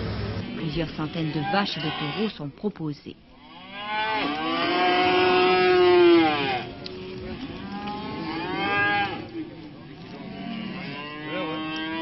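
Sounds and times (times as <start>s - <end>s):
cow mooing: 0.4s - 2.5s, 3.4s - 12.0s.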